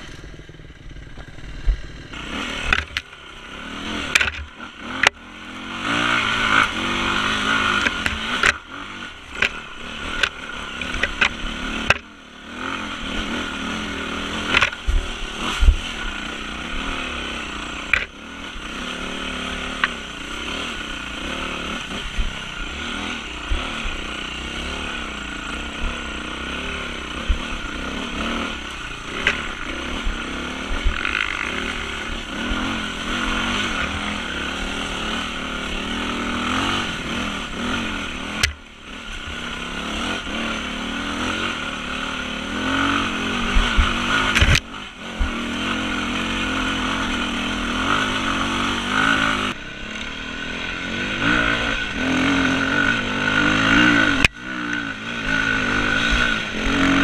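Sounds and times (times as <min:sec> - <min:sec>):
knocks and clatter from bike: 0:00.0 - 0:03.2, 0:03.9 - 0:05.3, 0:06.6 - 0:12.2, 0:14.4 - 0:18.3, 0:19.6 - 0:24.0, 0:27.2 - 0:41.8, 0:42.5 - 0:49.5
dirt bike engine revving: 0:00.0 - 0:57.0.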